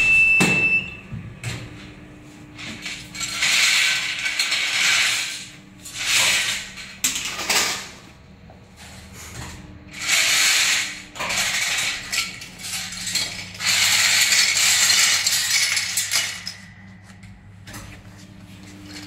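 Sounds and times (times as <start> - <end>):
parts clattering into plastic basket: 9.3 - 17.1.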